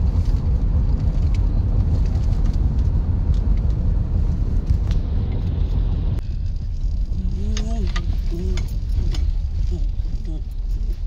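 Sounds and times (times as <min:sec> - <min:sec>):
car driving on paved road: 0:00.0 - 0:11.0.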